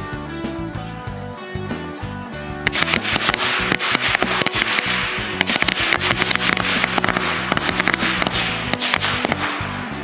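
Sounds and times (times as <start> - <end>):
background music: 0.0 - 10.0
firecrackers cracking: 2.7 - 10.0.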